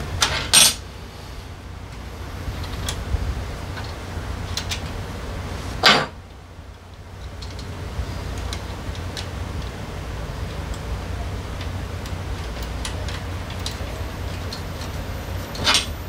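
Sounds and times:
steady low hum: 0.0s - 16.0s
wrench clanking on steel: 11.6s - 16.0s.

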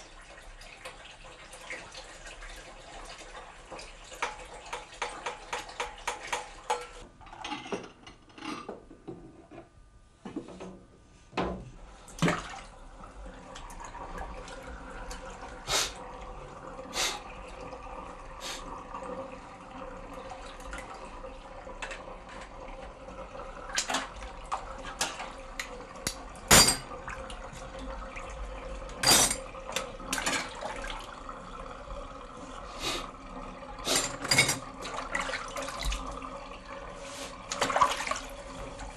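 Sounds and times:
water sloshing and splashing: 11.8s - 38.9s
crockery clinking against sink: 26.5s - 27.0s, 29.0s - 29.5s, 33.9s - 34.7s.

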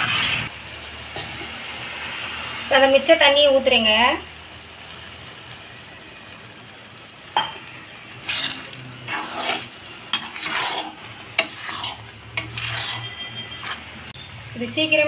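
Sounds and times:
metal spatula scraping a pan: 0.0s - 0.5s, 8.1s - 14.1s.

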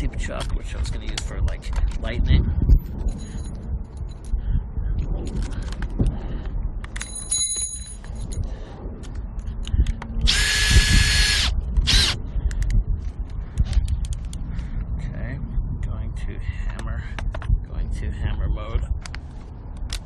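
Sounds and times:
knocks and handling clicks: 0.0s - 2.2s, 5.1s - 6.2s, 6.8s - 10.4s, 11.7s - 14.4s, 16.6s - 17.6s, 19.0s - 20.0s
high metallic ringing: 7.0s - 8.4s
power drill drilling into concrete: 10.3s - 12.2s.

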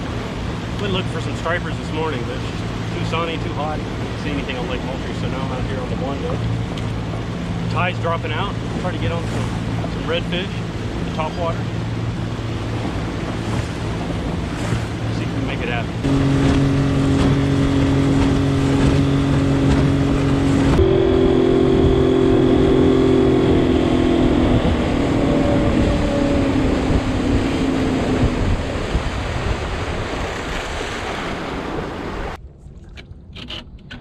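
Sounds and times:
rushing water: 0.0s - 33.5s
outboard motor running: 0.0s - 34.0s
wind: 0.0s - 34.0s.

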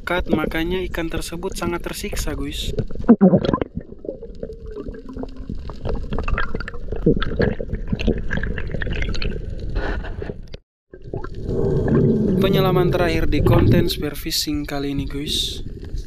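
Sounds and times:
water swishing and gurgling: 0.0s - 16.0s
low rumble: 11.4s - 16.0s.

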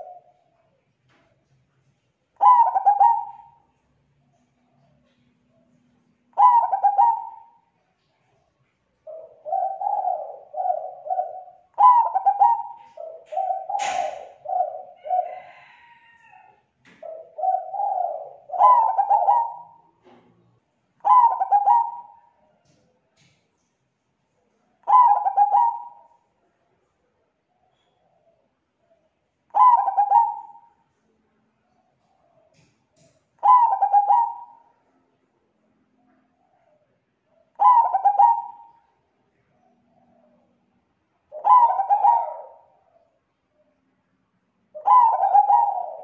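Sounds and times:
dove cooing: 0.0s - 0.5s, 2.4s - 8.3s, 9.0s - 20.3s, 21.0s - 23.4s, 24.7s - 30.9s, 31.7s - 35.0s, 36.0s - 43.8s, 44.8s - 46.0s
sharp click: 13.8s - 14.3s.

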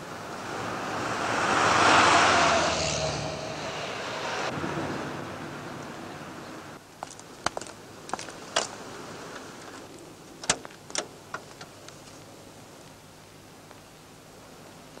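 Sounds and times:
rushing noise: 0.2s - 6.3s
low steady hiss: 4.6s - 15.0s.

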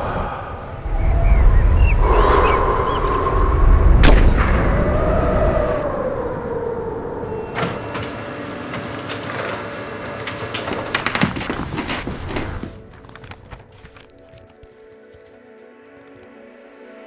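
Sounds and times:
low rumble: 0.0s - 8.4s.

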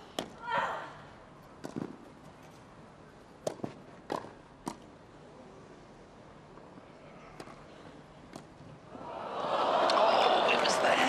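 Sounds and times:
rackets hitting tennis ball: 1.6s - 2.0s, 3.4s - 4.9s
hushed crowd: 8.8s - 11.0s.

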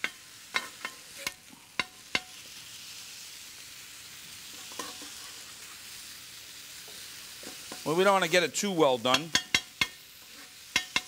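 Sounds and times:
metal spatulas clanking on griddle: 0.0s - 2.4s, 4.6s - 5.4s, 9.1s - 10.0s, 10.7s - 11.0s
meat sizzling on a griddle: 0.0s - 11.0s.

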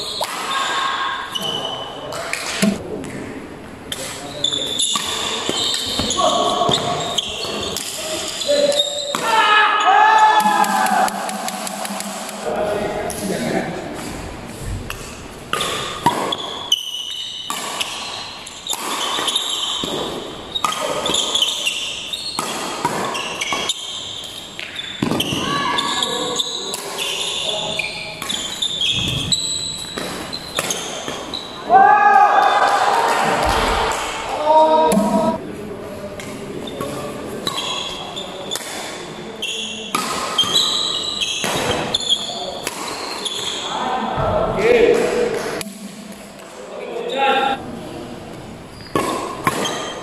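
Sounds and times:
racket hitting shuttlecock: 3.9s - 9.4s, 10.4s - 12.6s, 14.9s - 24.0s, 24.6s - 25.4s, 28.2s - 29.2s, 29.8s - 31.3s, 38.5s - 39.0s, 39.9s - 42.0s, 42.6s - 43.6s, 48.9s - 50.0s
sneakers squeaking on court: 4.0s - 9.2s, 15.5s - 31.6s, 36.6s - 38.6s, 39.4s - 43.7s, 48.7s - 50.0s.

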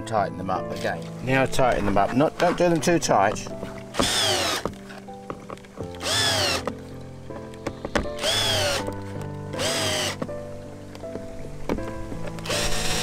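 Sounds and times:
electric screwdriver whirring: 4.0s - 4.7s, 6.0s - 6.7s, 8.2s - 8.9s, 9.6s - 10.2s, 12.4s - 13.0s.

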